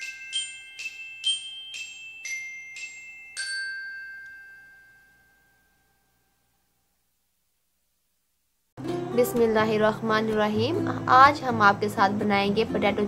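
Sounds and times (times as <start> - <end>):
glockenspiel jingle: 0.0 - 6.3.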